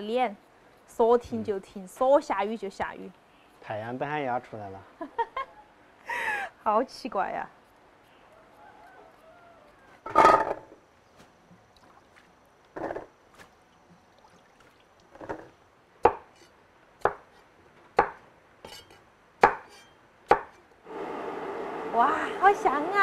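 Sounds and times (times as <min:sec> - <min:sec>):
knife chopping on cutting board: 0:16.1 - 0:17.4, 0:18.0 - 0:20.6.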